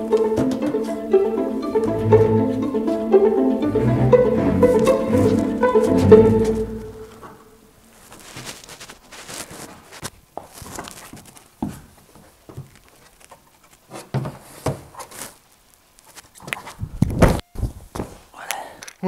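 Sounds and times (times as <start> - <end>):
hands and shoes on climbing holds: 0.1 - 1.0, 8.2 - 15.4.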